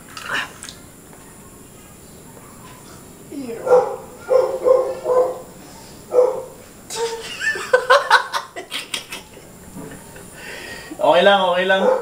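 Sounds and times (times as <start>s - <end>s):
men laughing in yelping bursts: 6.9s - 10.4s.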